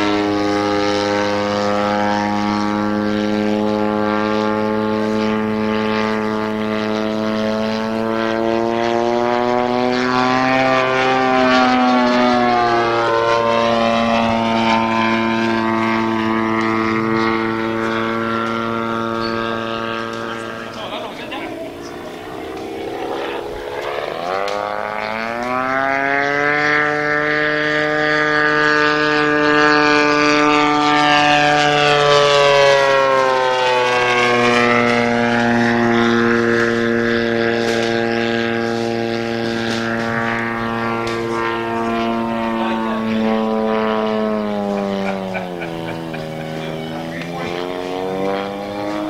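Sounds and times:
model plane engine in flight: 0.0s - 49.0s.

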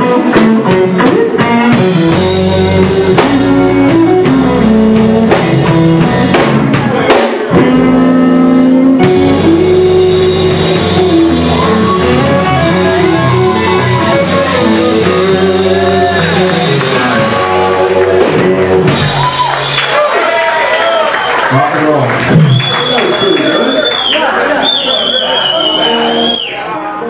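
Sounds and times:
lead guitar bent notes: 0.0s - 19.1s
electric blues band playing: 0.0s - 20.8s, 22.1s - 27.0s.

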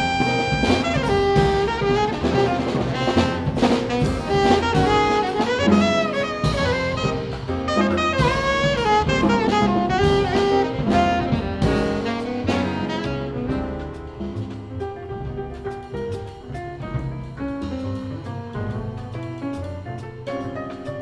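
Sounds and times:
alto saxophone soloing: 0.0s - 14.8s
double bass: 0.0s - 21.0s
drum kit: 0.0s - 21.0s
piano: 0.0s - 21.0s.

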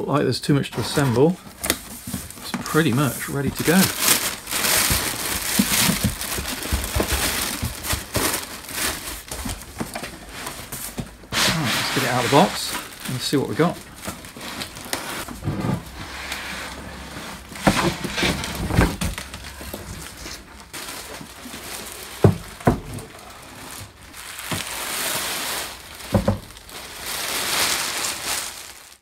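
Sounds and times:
cardboard scraping: 0.7s - 28.5s
plastic packaging crinkling: 0.8s - 29.0s
knocks and thumps: 4.6s - 8.5s, 22.2s - 23.1s, 26.1s - 26.5s.

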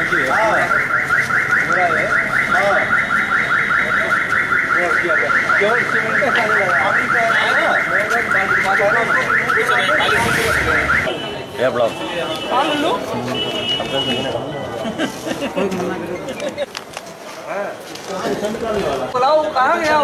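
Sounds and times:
electronic alarm chirping: 0.8s - 11.1s
people talking: 1.6s - 16.7s.

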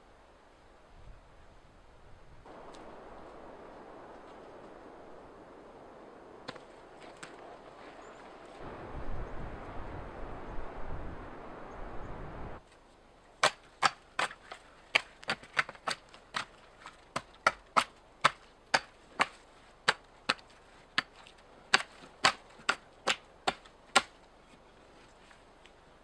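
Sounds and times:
rush of wind: 0.0s - 12.6s
axe chopping wood: 13.4s - 24.2s.

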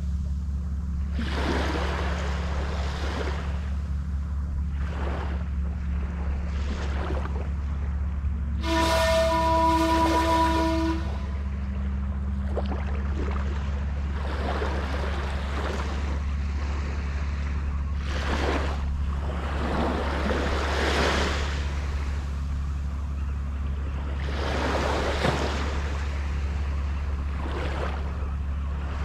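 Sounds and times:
small waves washing on sand: 1.1s - 3.7s, 4.7s - 7.9s, 12.4s - 22.4s, 23.9s - 29.0s
steady horn: 8.4s - 11.9s.

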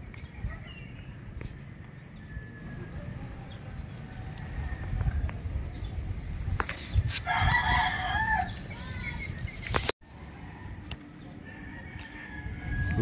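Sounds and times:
rooster crowing: 7.3s - 8.6s, 11.4s - 13.0s.

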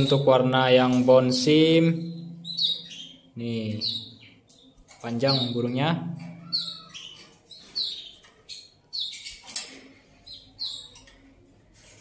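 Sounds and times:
canary chirping: 0.0s - 12.0s.

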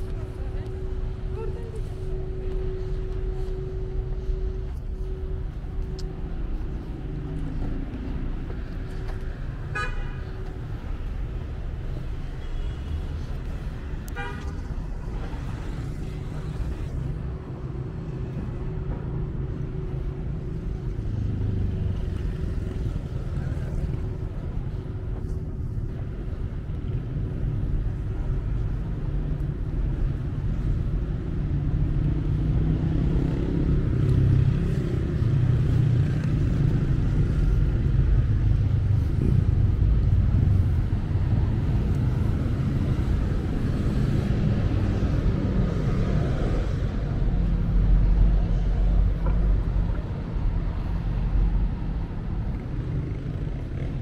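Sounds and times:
passing cars rumbling: 13.0s - 54.0s.

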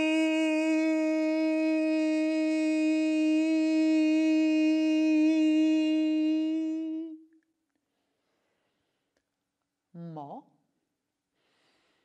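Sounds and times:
woman singing a long note: 0.0s - 7.2s.

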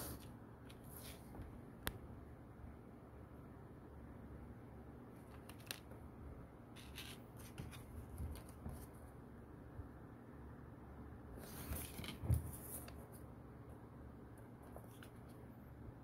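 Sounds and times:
paper rustling and crackling: 11.4s - 13.0s.

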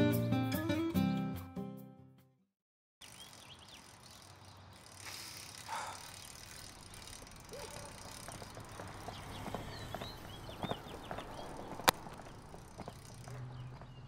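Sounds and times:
bicycle wheeled along pavement: 3.0s - 14.0s
birds chirping: 3.0s - 14.0s.

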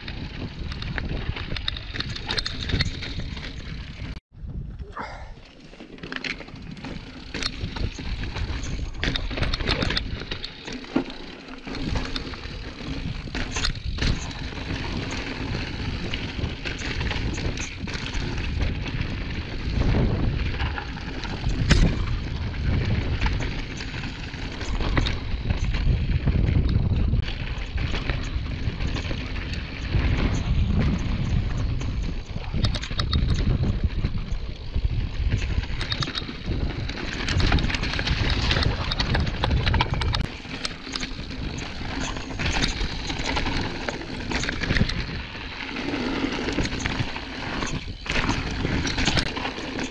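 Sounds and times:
bike tyres over gravel: 0.0s - 4.2s, 5.4s - 49.9s
wind buffeting microphone: 0.0s - 5.4s, 6.5s - 10.4s, 11.6s - 49.9s.

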